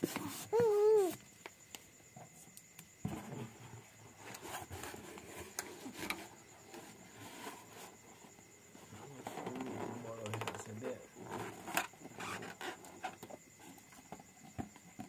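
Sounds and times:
rubber balloon rustling and squeaking: 0:00.0 - 0:01.3, 0:03.0 - 0:13.4.

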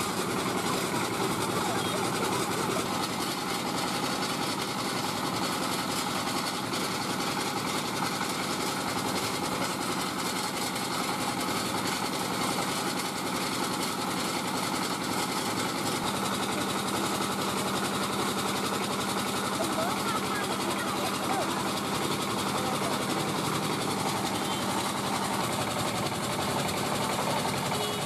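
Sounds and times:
diesel engine running: 0:00.0 - 0:28.0.

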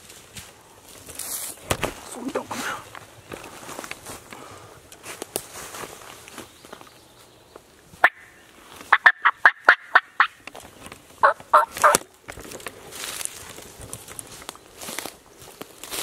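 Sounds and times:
turkey calling: 0:08.0 - 0:10.4, 0:11.2 - 0:12.1.

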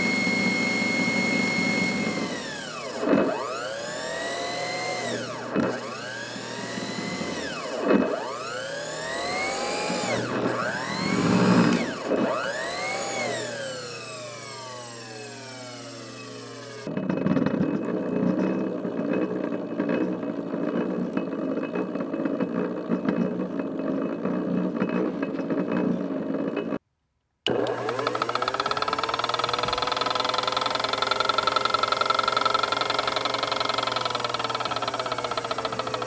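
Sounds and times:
electric motor whining: 0:00.0 - 0:20.9, 0:27.5 - 0:36.0
motor rattling: 0:00.0 - 0:26.8, 0:27.5 - 0:36.0.

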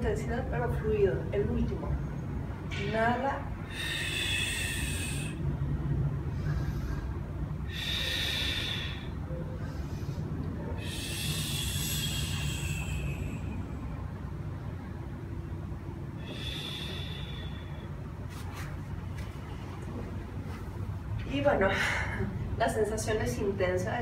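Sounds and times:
steady low hum: 0:00.0 - 0:24.0
woman breathing: 0:03.5 - 0:18.6, 0:21.6 - 0:22.6.

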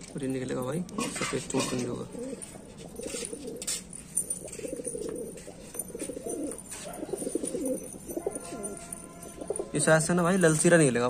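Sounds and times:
pigeons cooing: 0:01.0 - 0:09.8.

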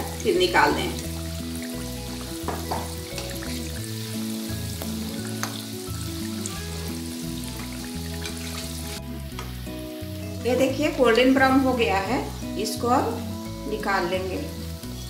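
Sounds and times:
background music with bass line: 0:00.0 - 0:15.0
food sizzling in hot oil: 0:00.0 - 0:15.0.

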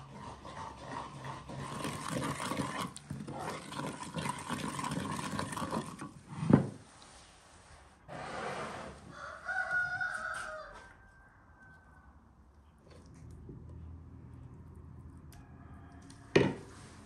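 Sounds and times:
metal spoon scraping clay bowl: 0:00.0 - 0:06.5.

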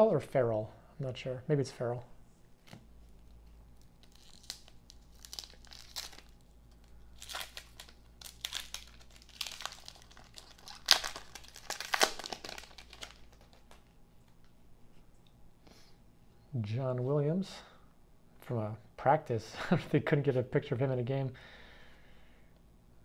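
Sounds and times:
wrapper crinkling and tearing: 0:03.1 - 0:14.0.

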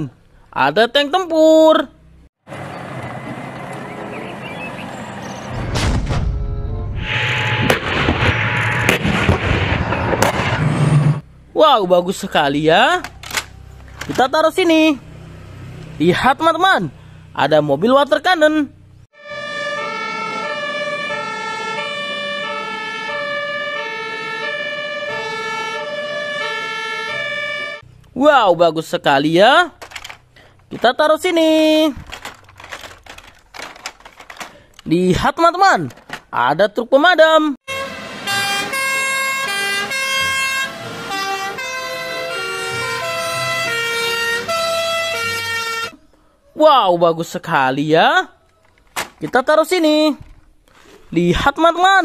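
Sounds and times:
two-tone fire engine siren: 0:19.2 - 0:27.8, 0:37.7 - 0:46.0.

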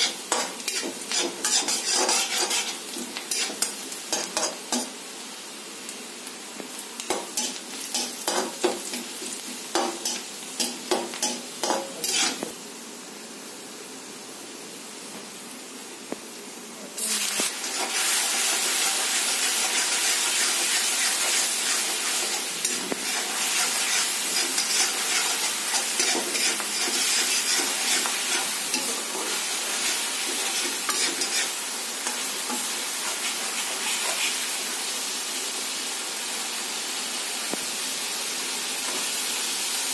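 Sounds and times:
ladle stirring and scraping in pan: 0:00.0 - 0:04.9, 0:07.0 - 0:12.5, 0:17.6 - 0:34.5
paste sizzling in hot oil: 0:00.0 - 0:13.7, 0:17.0 - 0:39.9.

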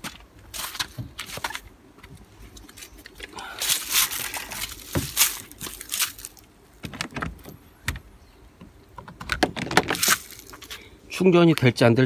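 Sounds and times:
cable rustling: 0:00.0 - 0:07.6, 0:09.3 - 0:10.8.

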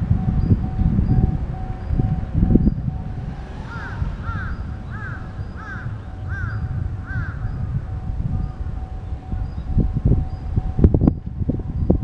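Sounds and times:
low steady rumble: 0:00.0 - 0:12.0
crow cawing: 0:03.7 - 0:07.5.

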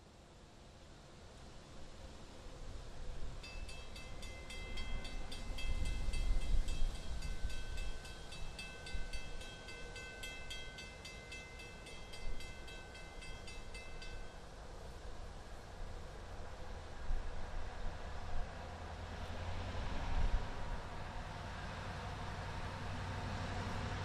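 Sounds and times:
railroad warning bell ringing: 0:03.4 - 0:14.6.

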